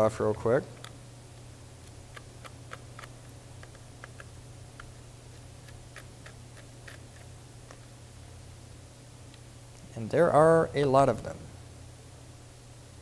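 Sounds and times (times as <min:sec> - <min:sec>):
low steady hum: 0:00.0 - 0:13.0.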